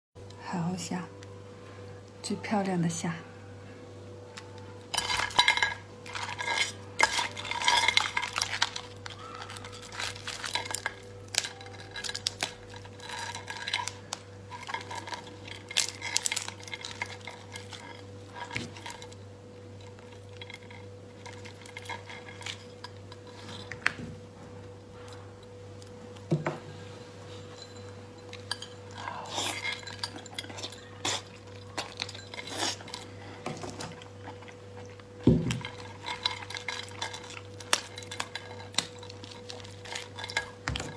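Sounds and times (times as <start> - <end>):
faint steady hum: 0.2 - 40.9
shells cracking and snapping: 4.4 - 19.2, 33.7 - 40.9.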